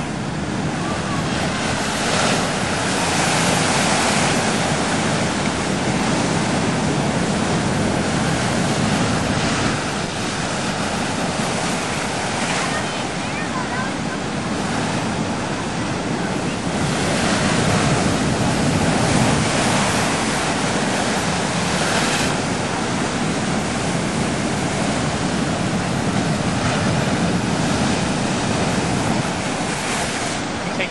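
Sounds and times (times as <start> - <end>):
ocean surf on rocky shoreline: 0.0 - 30.9.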